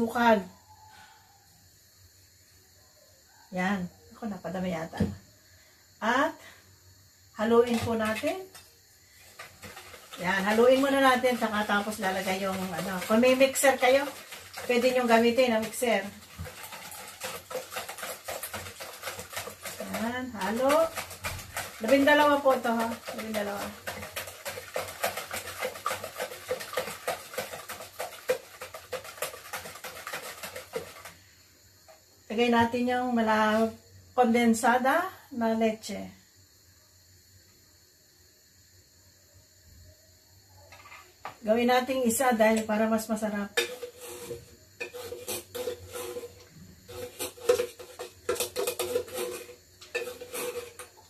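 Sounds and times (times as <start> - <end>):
beating eggs in plastic bowl: 7.4 - 31.3, 42.2 - 51.0
metal spoon scraping tin can: 7.5 - 8.6, 9.2 - 31.2, 43.6 - 51.0.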